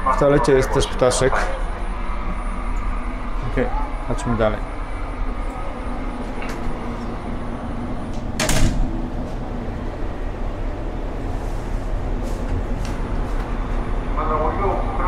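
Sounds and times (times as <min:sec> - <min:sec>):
low hum of stationary train: 0:00.0 - 0:15.0
train door rushing burst: 0:07.9 - 0:09.4.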